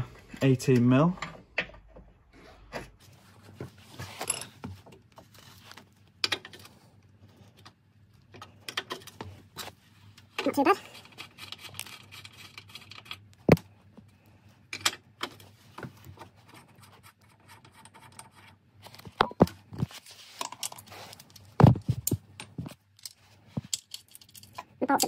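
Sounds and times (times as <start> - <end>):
metallic clicks and scraping: 10.2 - 13.4, 20.3 - 25.0.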